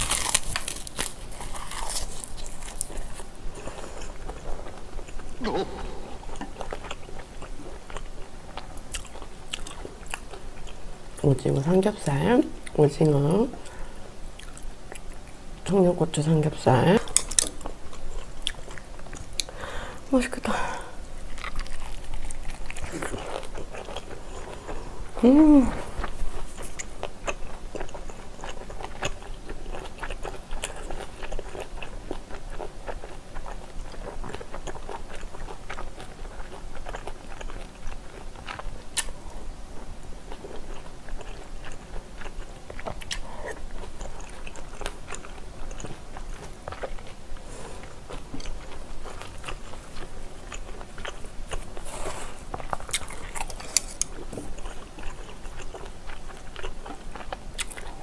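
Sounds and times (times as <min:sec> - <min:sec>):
close chewing with wet mouth clicks: 0:00.0 - 0:10.8, 0:21.2 - 0:24.8, 0:26.0 - 0:39.2, 0:40.3 - 0:58.0
food crunching: 0:00.0 - 0:15.8, 0:16.7 - 0:19.7, 0:21.2 - 0:58.0.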